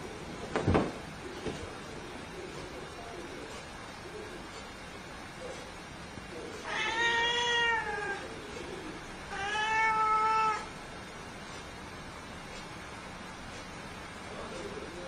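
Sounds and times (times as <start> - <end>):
cat meowing: 6.6 - 8.3, 9.3 - 10.7.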